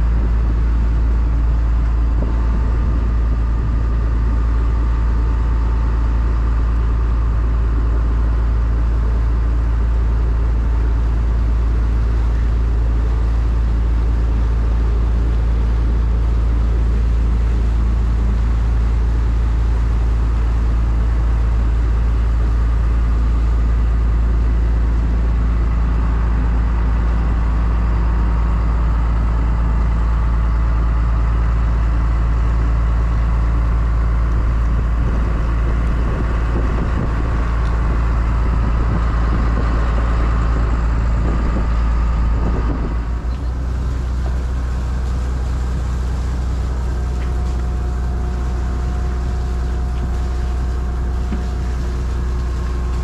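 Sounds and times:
boat engine droning: 0.0s - 53.0s
wake rushing: 33.2s - 53.0s.

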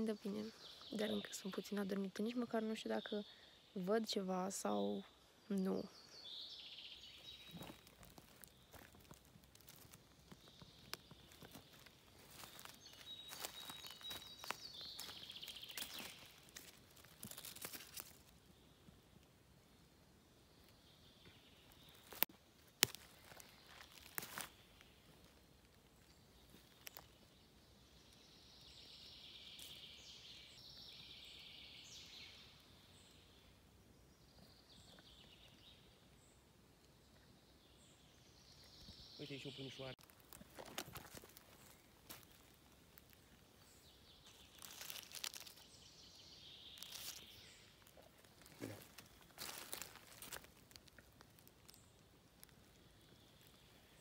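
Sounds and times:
faint woodland ambience: 0.0s - 54.0s
dry leaves and twigs rustling: 6.3s - 19.0s, 21.2s - 32.2s, 40.0s - 54.0s.

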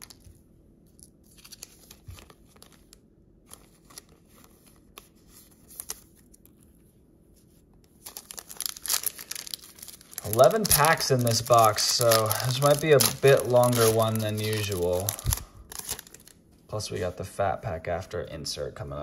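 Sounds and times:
plastic sleeve rustling: 0.0s - 6.7s, 7.3s - 17.1s
foil wrapper crinkling: 1.0s - 6.6s, 7.9s - 16.4s.

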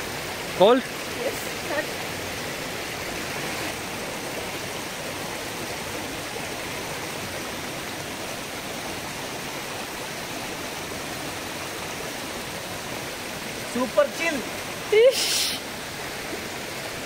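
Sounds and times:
stream flowing over stones: 0.0s - 17.0s.

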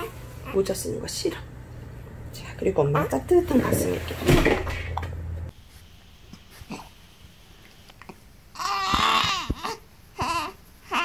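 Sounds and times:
newborn baby crying: 8.5s - 11.0s.

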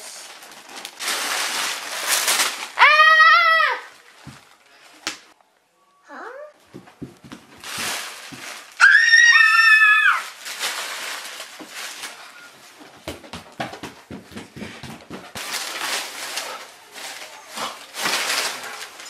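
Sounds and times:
paper rustling: 0.2s - 2.8s, 6.8s - 9.0s, 9.8s - 13.2s, 14.6s - 19.0s
child screaming: 2.8s - 4.0s, 8.8s - 10.3s.

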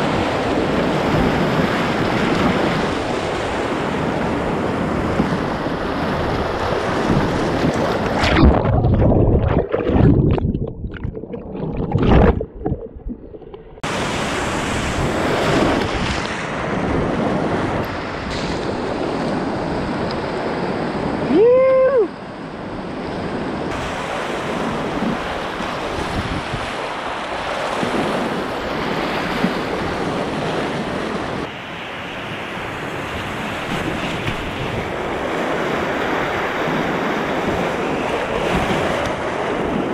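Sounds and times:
whitewater rushing and splashing: 0.0s - 12.7s
wind on microphone: 0.0s - 22.1s, 22.8s - 26.9s, 32.2s - 39.9s
muffled low thumps: 8.2s - 13.8s
person whooping shout: 21.3s - 22.1s.

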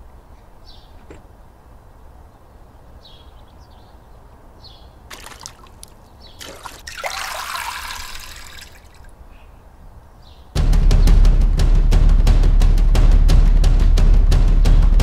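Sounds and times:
cloth sloshed in bucket: 5.1s - 9.0s
water trickling into bucket: 5.1s - 9.1s.

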